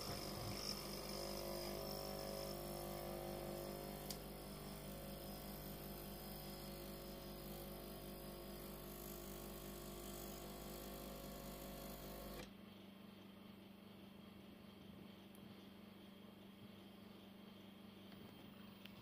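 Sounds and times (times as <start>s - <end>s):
espresso machine pump humming: 0.0s - 12.5s
faint background hum: 0.0s - 19.0s.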